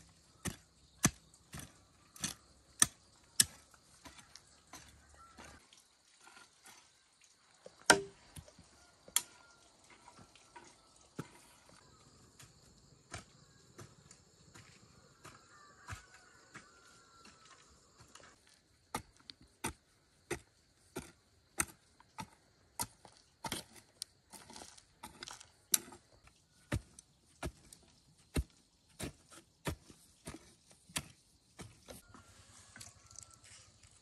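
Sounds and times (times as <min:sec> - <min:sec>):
hand tool chopping strikes: 0:07.9 - 0:08.2.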